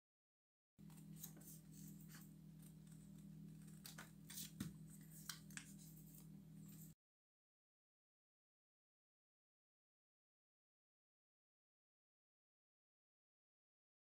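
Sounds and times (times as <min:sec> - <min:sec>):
scissors snipping paper: 0:00.8 - 0:06.3
paper handling: 0:00.8 - 0:06.9
steady low hum: 0:00.8 - 0:07.0.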